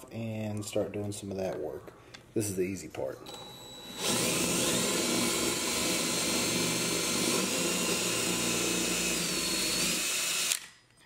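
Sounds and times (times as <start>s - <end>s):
power drill with hole saw cutting: 3.3s - 10.6s.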